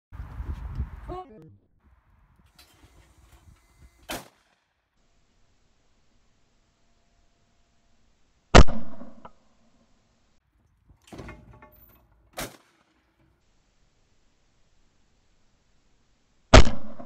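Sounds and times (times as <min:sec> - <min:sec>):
loud shotgun shot: 0:04.0 - 0:04.7, 0:08.6 - 0:09.2, 0:12.4 - 0:12.9, 0:16.5 - 0:17.0
short sharp crack: 0:04.0 - 0:04.8, 0:12.3 - 0:13.2.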